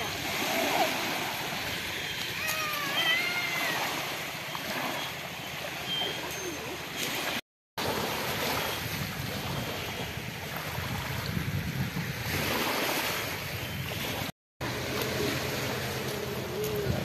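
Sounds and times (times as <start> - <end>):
waves washing over pebbles: 0.0 - 17.0
wind rumbling on microphone: 8.0 - 17.0.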